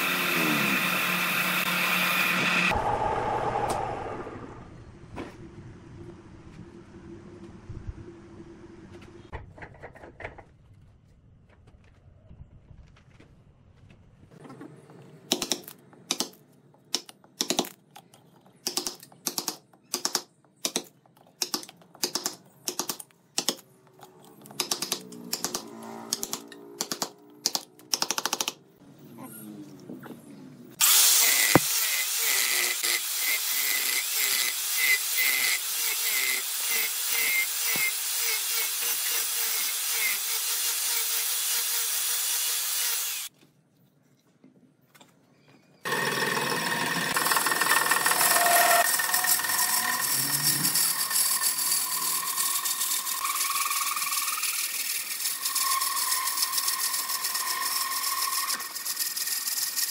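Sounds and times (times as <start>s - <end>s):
angle grinder grinding wood: 0.0s - 3.0s, 30.8s - 43.3s, 45.9s - 59.9s.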